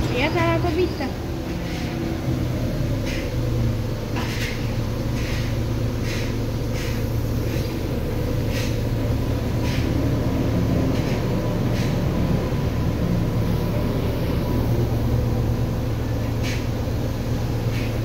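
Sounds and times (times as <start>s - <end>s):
bus diesel engine drone: 0.0s - 18.0s.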